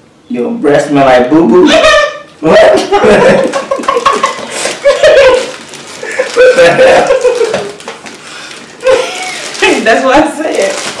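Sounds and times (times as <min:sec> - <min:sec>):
man laughing: 0:01.6 - 0:07.8
woman laughing muffled: 0:03.0 - 0:07.8, 0:08.8 - 0:09.5.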